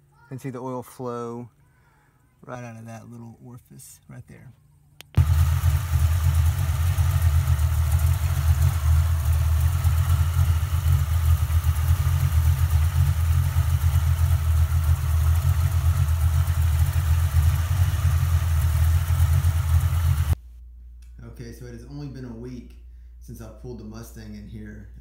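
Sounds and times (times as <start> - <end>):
car engine idling: 5.1 - 20.4.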